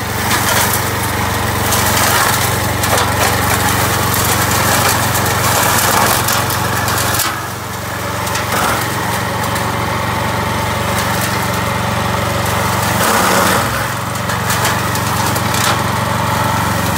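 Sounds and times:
blades chopping dry weeds: 0.0s - 16.9s
brush mower engine running: 0.0s - 16.9s.

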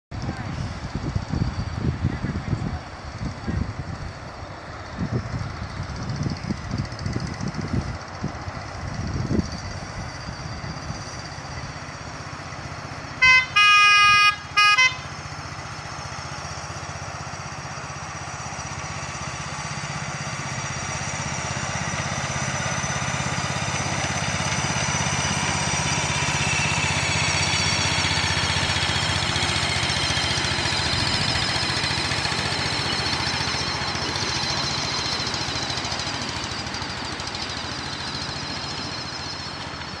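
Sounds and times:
locomotive horn toots: 13.1s - 15.3s
miniature train engine running: 15.9s - 40.0s.

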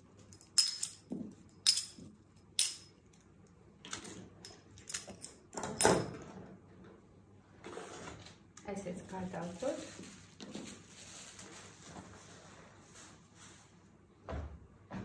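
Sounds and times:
metal tools clicking: 0.2s - 3.2s, 4.0s - 6.1s
fabric and paper rustling: 9.0s - 13.8s.

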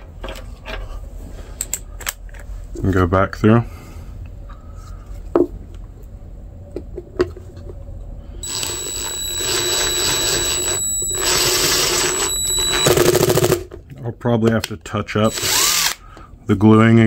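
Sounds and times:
cordless drill whining: 8.4s - 13.2s, 15.3s - 16.0s.

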